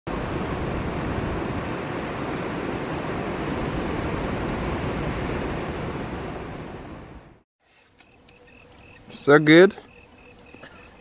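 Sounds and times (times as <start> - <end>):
ocean waves breaking: 0.1 - 7.4.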